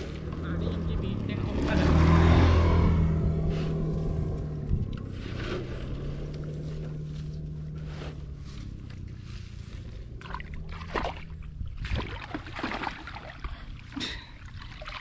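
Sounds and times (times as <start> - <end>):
low background rumble: 0.0 - 15.0
shallow water splashing: 10.1 - 15.0.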